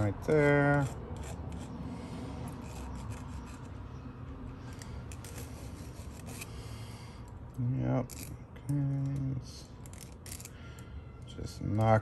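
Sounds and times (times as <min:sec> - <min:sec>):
file rasping on metal key: 0:00.0 - 0:01.8, 0:02.4 - 0:03.9, 0:04.8 - 0:06.6.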